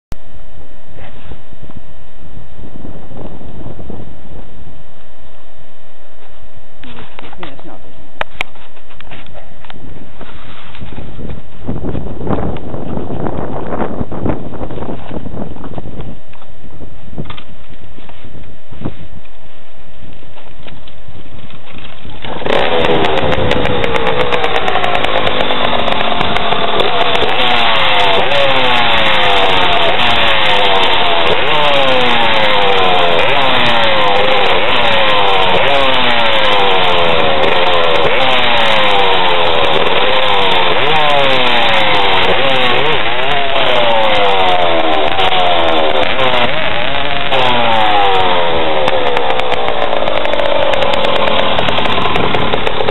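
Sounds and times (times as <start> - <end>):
two-stroke engine revving: 21.7 - 52.9.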